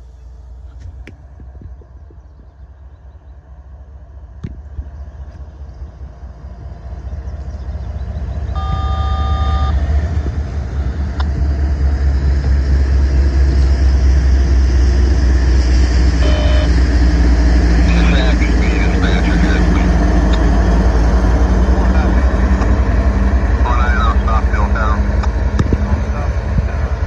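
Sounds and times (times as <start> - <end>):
diesel locomotives rumbling: 0.0 - 27.0
train horn blast: 8.6 - 9.8, 16.2 - 16.8.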